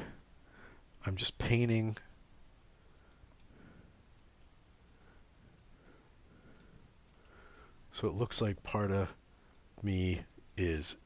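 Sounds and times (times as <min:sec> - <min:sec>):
computer mouse clicks: 0:03.0 - 0:03.6, 0:04.2 - 0:04.6, 0:05.5 - 0:07.4.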